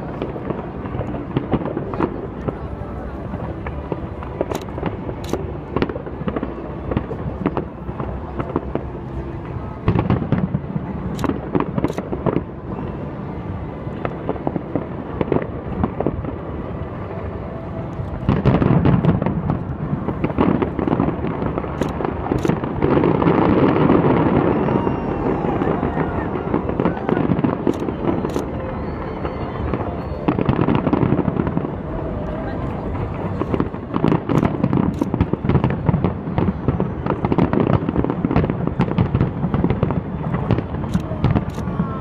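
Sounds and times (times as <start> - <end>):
fireworks pops and bangs: 0.1 - 2.7, 3.3 - 12.5, 18.0 - 24.6, 33.0 - 42.0.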